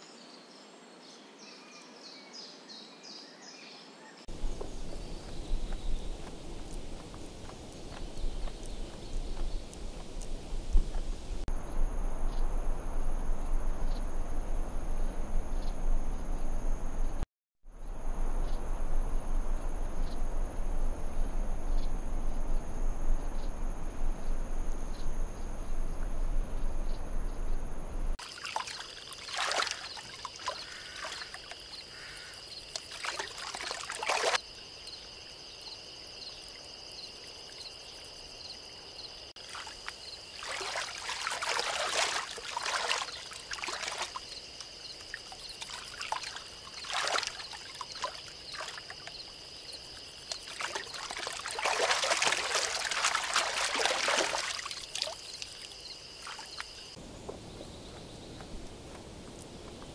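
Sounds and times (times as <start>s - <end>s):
water splashing and dribbling: 4.3s - 11.5s, 28.2s - 34.4s, 39.3s - 57.0s
water rushing: 28.2s - 34.4s, 39.4s - 49.1s, 50.2s - 56.6s.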